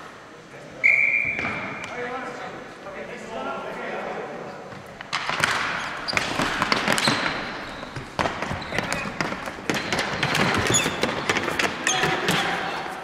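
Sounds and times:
hockey sticks striking ball: 0:04.9 - 0:13.0.

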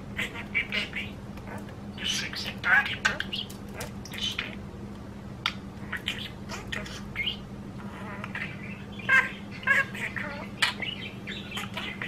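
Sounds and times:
budgerigar chattering: 0:00.2 - 0:04.6, 0:05.5 - 0:12.0.

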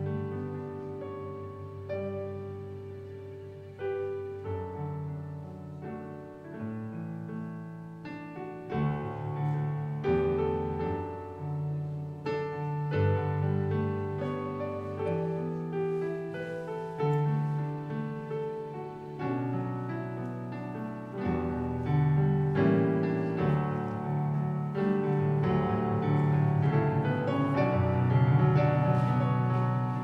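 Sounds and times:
slow piano music: 0:00.0 - 0:30.0.

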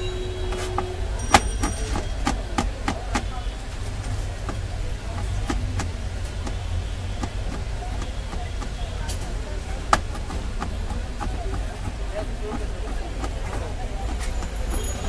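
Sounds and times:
knife chopping nuts on board: 0:04.4 - 0:14.8.

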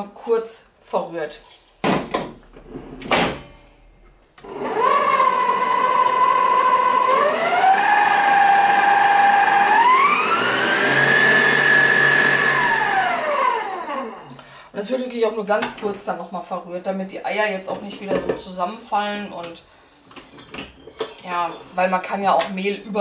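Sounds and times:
stand mixer motor whining: 0:04.4 - 0:14.3.

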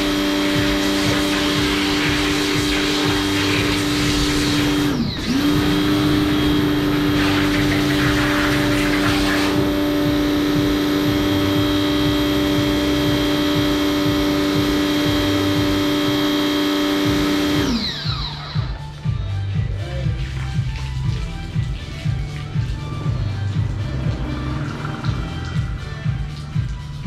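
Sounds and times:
water spray hiss: 0:00.0 - 0:13.2
pressure washer motor humming: 0:00.0 - 0:27.0.

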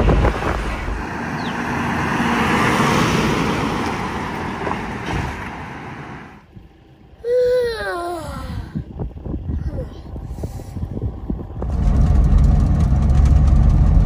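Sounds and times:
vehicle driving past: 0:00.0 - 0:06.4.

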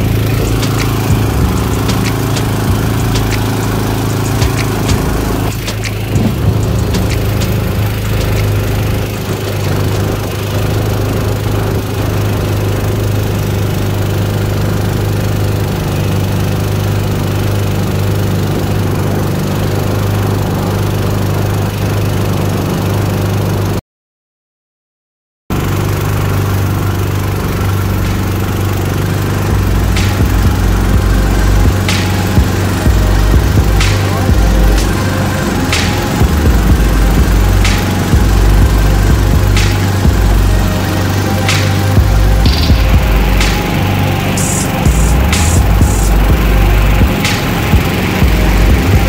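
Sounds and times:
small gasoline engine droning: 0:00.0 - 0:23.8, 0:25.5 - 0:49.0.

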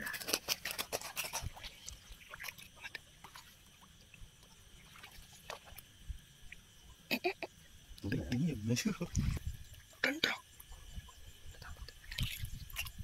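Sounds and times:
water dripping and splashing: 0:00.5 - 0:06.6, 0:11.6 - 0:13.0.

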